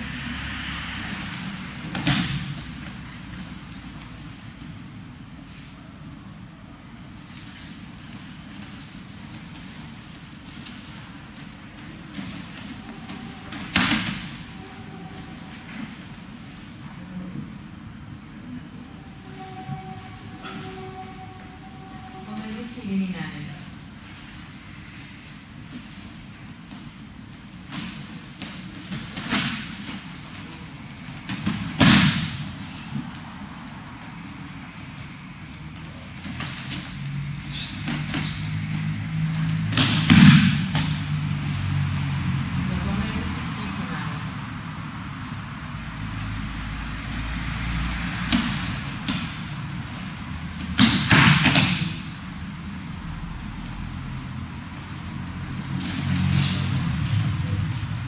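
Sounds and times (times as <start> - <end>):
body slapping onto mat: 39.7 - 41.1, 50.6 - 52.2.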